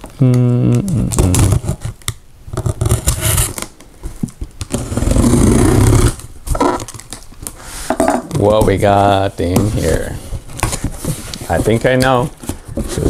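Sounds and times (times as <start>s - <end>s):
box cutter scraping cardboard: 2.7s - 3.6s, 4.7s - 6.8s.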